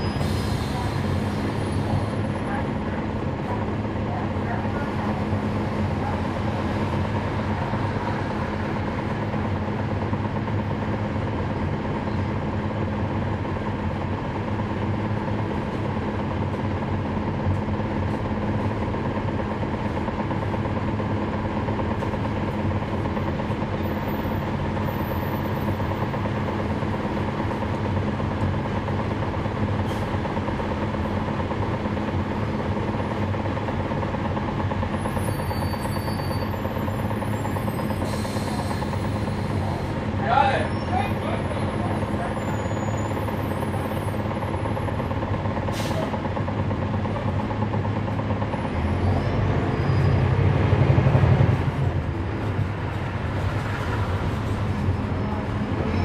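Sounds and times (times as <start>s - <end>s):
bus diesel engine humming: 0.0s - 56.0s.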